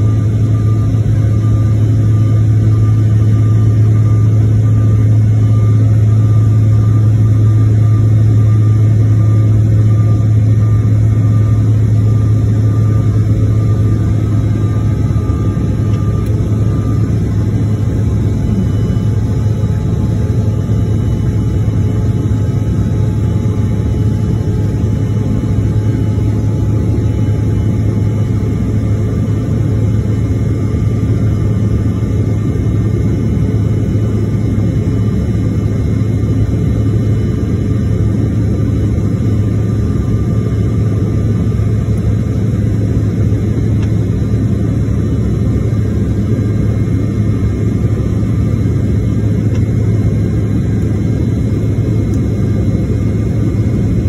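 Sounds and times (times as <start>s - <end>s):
airliner cabin engine drone: 0.0s - 54.0s
faint high tones: 12.2s - 22.1s.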